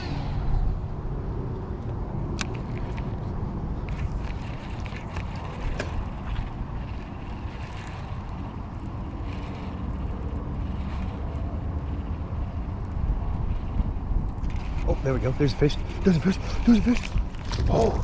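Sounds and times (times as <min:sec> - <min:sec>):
wind buffeting microphone: 0:00.0 - 0:18.0
fishing reel whirring: 0:03.9 - 0:14.9.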